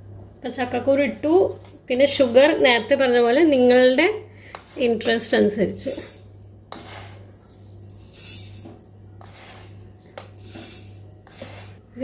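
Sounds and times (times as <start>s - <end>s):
sugar granules pouring: 5.8s - 11.8s.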